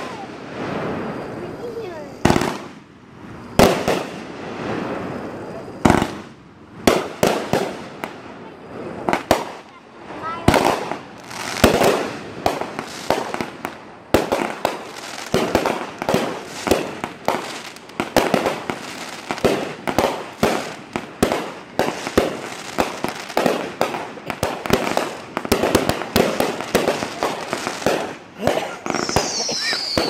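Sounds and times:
fireworks crackling: 0.0s - 30.0s
firework shells bursting: 9.0s - 30.0s.

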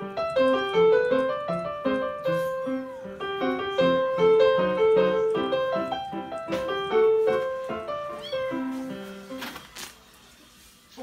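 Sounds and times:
light piano melody: 0.0s - 11.0s.

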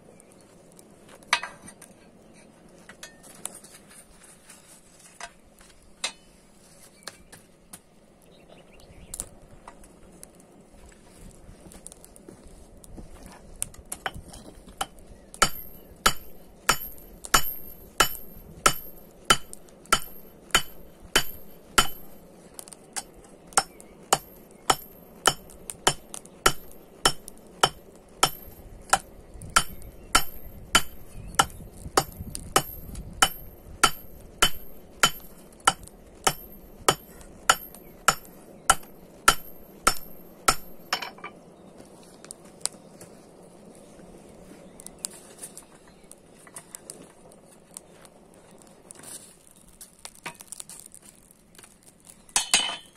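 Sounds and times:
hammer ringing on anvil: 15.4s - 22.2s, 29.6s - 41.3s.

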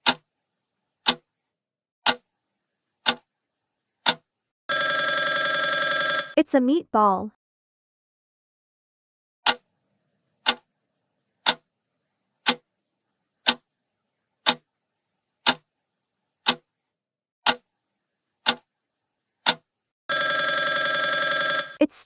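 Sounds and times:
clock ticking: 0.0s - 0.3s, 1.0s - 1.3s, 2.0s - 2.3s, 3.0s - 3.3s, 4.0s - 4.3s, 9.4s - 9.7s, 10.4s - 10.7s, 11.4s - 11.6s, 12.4s - 12.6s, 13.4s - 13.6s, 14.4s - 14.6s, 15.4s - 15.6s, 16.4s - 16.7s, 17.4s - 17.7s, 18.4s - 18.7s, 19.4s - 19.6s.

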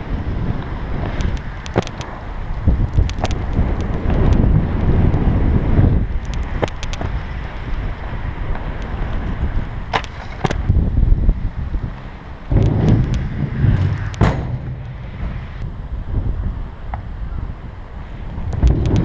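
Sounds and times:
skate wheels rolling on concrete: 0.0s - 19.0s
wind buffeting microphone: 0.0s - 19.0s.

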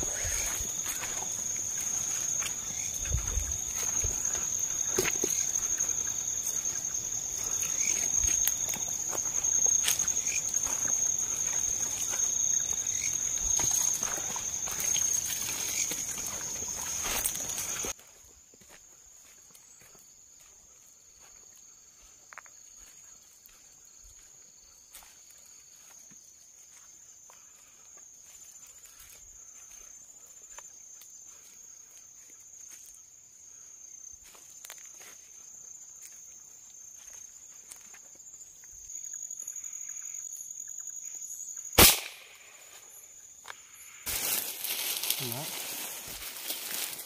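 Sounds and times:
rustling through undergrowth: 0.0s - 18.0s, 44.0s - 47.0s
crickets chirping: 0.0s - 47.0s.

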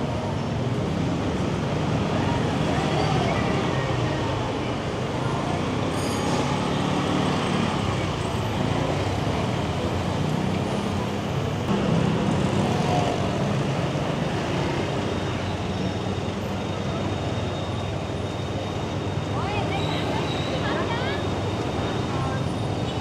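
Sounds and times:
road and traffic noise: 0.0s - 23.0s
high squeal: 5.8s - 6.7s.

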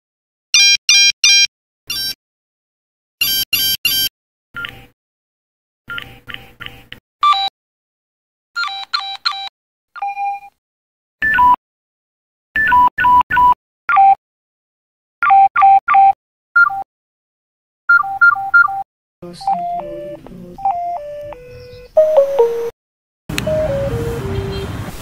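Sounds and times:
phone electronic beeps: 0.6s - 2.2s, 3.2s - 4.1s, 7.2s - 7.5s, 8.6s - 10.5s, 17.9s - 22.7s.

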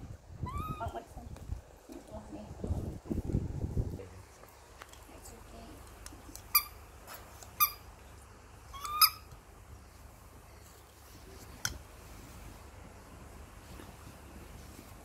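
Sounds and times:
baby monkey squeaking: 0.4s - 1.0s, 8.7s - 9.3s.

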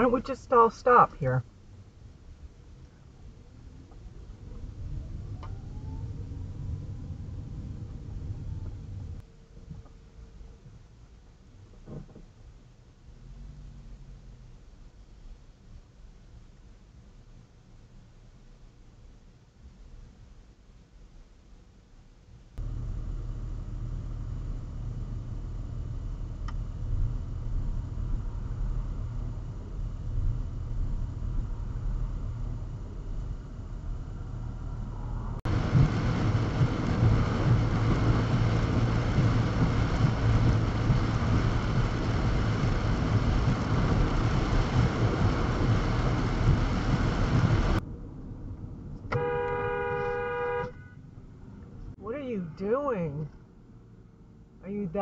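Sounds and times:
car engine and road rumble: 0.0s - 55.0s
rain on car: 35.4s - 47.8s
tyre hiss on wet road: 35.5s - 47.8s
car horn honking: 49.1s - 51.0s.

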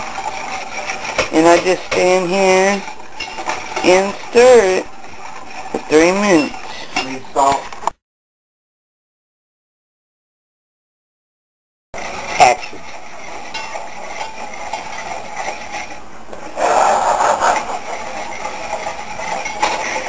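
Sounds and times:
whisk scraping a pan: 0.0s - 7.7s, 12.0s - 20.0s
frying noise: 0.0s - 8.0s, 12.0s - 20.0s.

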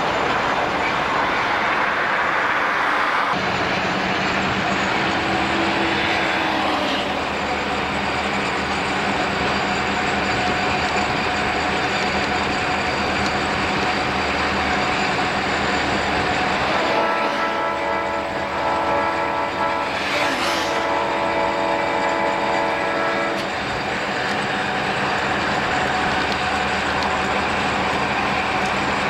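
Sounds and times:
car road and wind noise: 0.0s - 18.6s
diesel locomotive drone: 0.0s - 29.0s
locomotive air horn: 16.6s - 23.6s.

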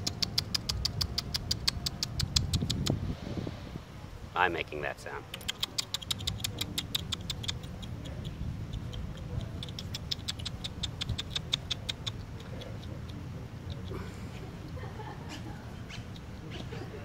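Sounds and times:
person clicking with mouth: 0.0s - 3.0s, 5.3s - 14.0s, 15.9s - 16.8s.

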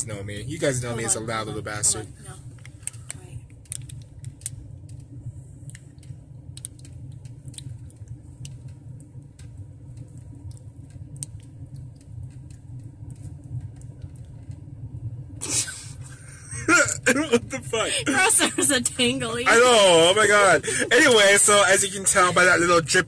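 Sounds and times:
car engine idling: 0.0s - 23.0s
light clicks and ticks: 2.5s - 14.6s.

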